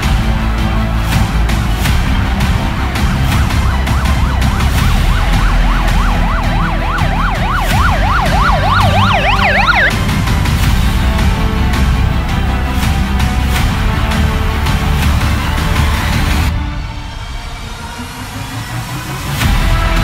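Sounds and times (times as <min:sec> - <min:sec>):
music with low beat: 0:00.0 - 0:10.0
higher siren: 0:03.0 - 0:10.0
siren yelping: 0:03.3 - 0:09.9.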